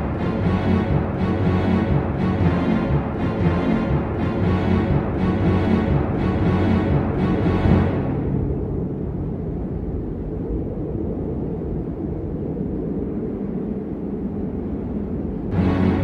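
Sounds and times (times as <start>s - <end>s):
ambient music with sustained tones: 0.0s - 10.1s, 15.5s - 16.0s
low rumbling drone: 0.0s - 16.0s.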